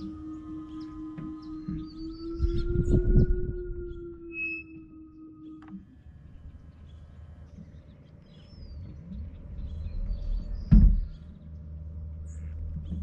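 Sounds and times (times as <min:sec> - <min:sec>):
loud dull thump: 0:10.7 - 0:11.2.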